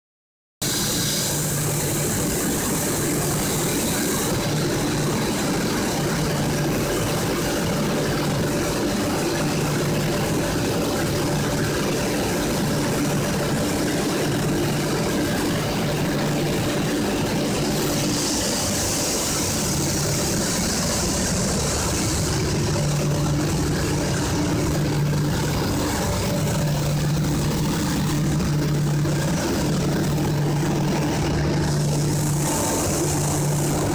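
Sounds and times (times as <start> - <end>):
hiss: 0.6 - 4.8
low pulsing drone: 0.6 - 33.9
machine hum: 0.6 - 33.9.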